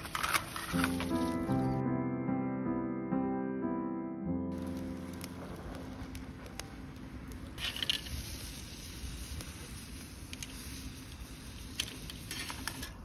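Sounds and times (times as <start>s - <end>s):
wood fire pops and crackles: 0.0s - 1.5s, 4.5s - 13.0s
scallops bubbling and sizzling: 4.6s - 13.0s.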